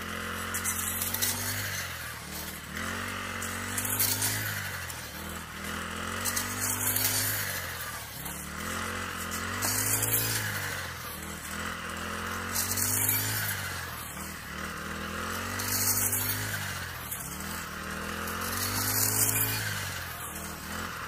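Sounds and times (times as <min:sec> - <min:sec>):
brush cutter engine under load: 0:00.0 - 0:21.0
swish of cut stalks: 0:00.5 - 0:11.6.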